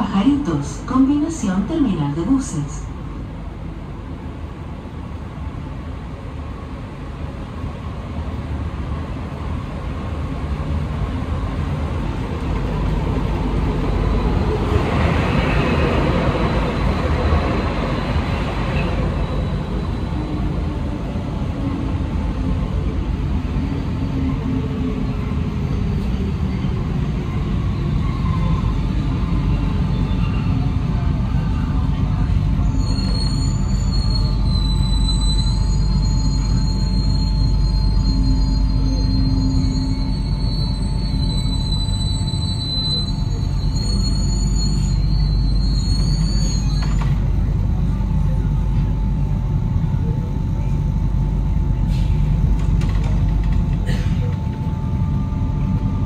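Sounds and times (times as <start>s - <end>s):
metro train rumbling: 0.0s - 56.0s
faint whine shifting in pitch: 53.9s - 56.0s.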